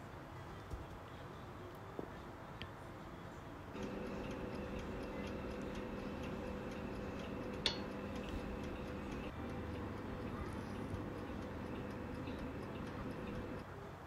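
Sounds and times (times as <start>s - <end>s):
fast even ticking: 3.8s - 13.6s
oven humming: 3.8s - 13.6s.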